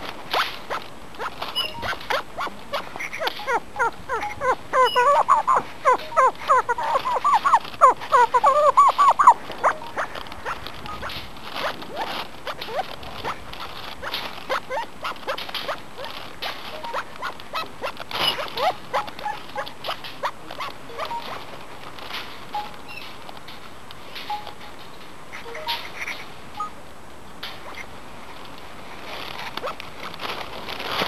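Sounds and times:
partridge calling harsh notes: 0:00.3 - 0:16.1, 0:16.7 - 0:21.5.

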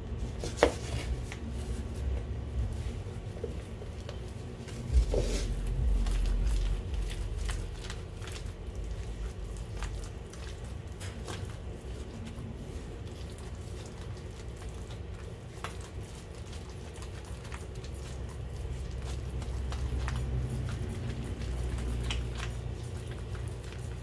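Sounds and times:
soft squishing of frosting: 0:00.0 - 0:24.0
low rumble: 0:01.0 - 0:10.6.

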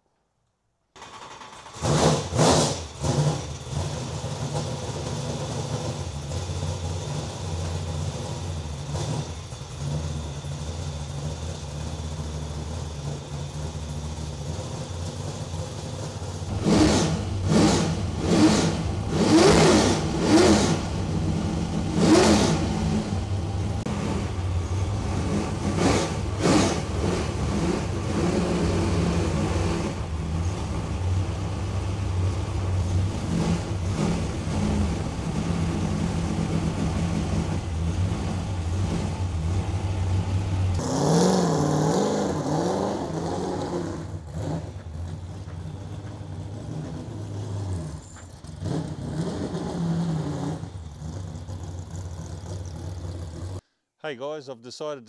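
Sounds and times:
engine starter cranking: 0:00.9 - 0:04.2
race engine idling and revving: 0:01.0 - 0:53.6.

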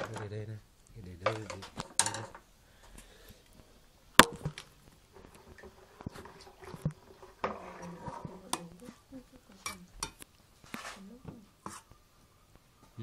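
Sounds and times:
spoon scraping metal bowl: 0:05.2 - 0:12.0.

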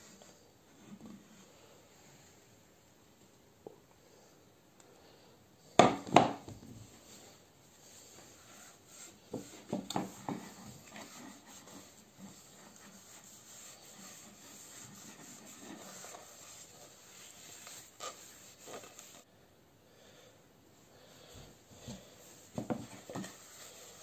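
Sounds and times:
cloth rubbing wooden bowl: 0:06.8 - 0:19.3, 0:21.8 - 0:24.0.

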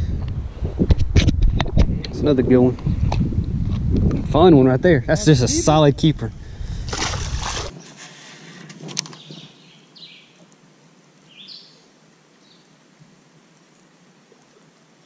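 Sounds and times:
fish splashing into water: 0:06.8 - 0:07.7
bird chirping: 0:09.0 - 0:10.4, 0:11.3 - 0:12.7.

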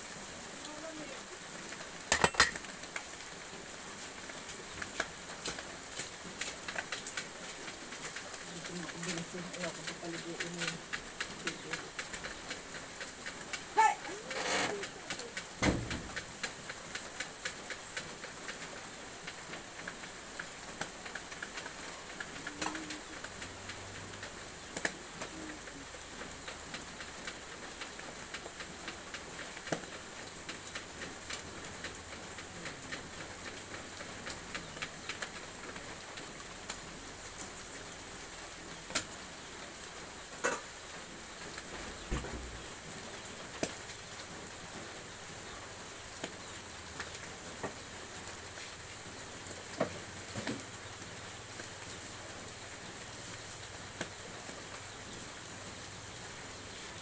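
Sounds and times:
burning wood crackling and popping: 0:00.6 - 0:57.0
wok sizzling: 0:01.7 - 0:05.8.

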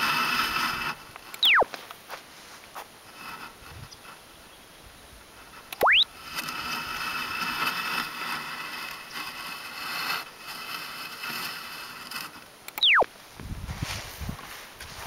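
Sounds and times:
stylus scraping through sand: 0:00.0 - 0:04.2, 0:05.4 - 0:12.5, 0:13.7 - 0:15.0
rising electronic chirp: 0:01.4 - 0:01.7, 0:05.8 - 0:06.1, 0:12.8 - 0:13.1.

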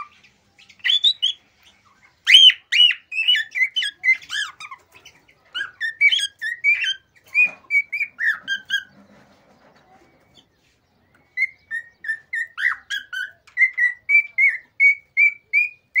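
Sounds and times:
cockatiel whistling song: 0:00.0 - 0:01.4, 0:02.2 - 0:04.8, 0:05.5 - 0:09.0, 0:11.1 - 0:16.0.

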